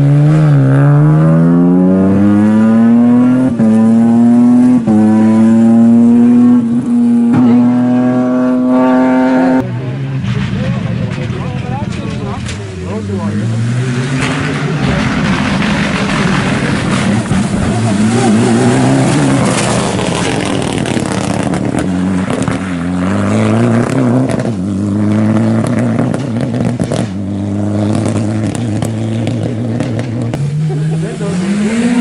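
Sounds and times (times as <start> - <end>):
car engine accelerating hard: 0.0 - 32.0
engine crackles: 10.1 - 32.0.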